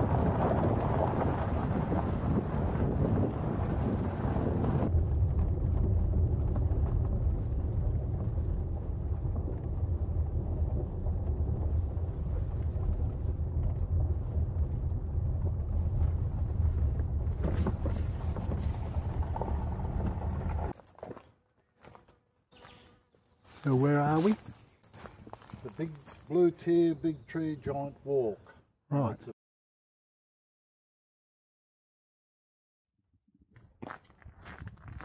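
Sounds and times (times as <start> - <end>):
wind buffeting microphone: 0.0 - 20.7
car engine and tyres rumbling: 0.0 - 20.8
gravel crackles: 0.0 - 28.6, 33.4 - 35.0.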